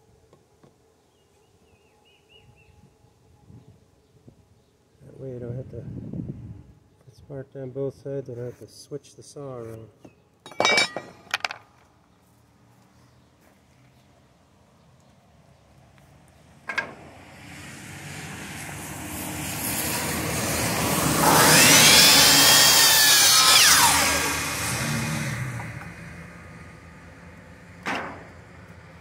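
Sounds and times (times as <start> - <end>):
miter saw cutting wood: 18.8 - 26.6.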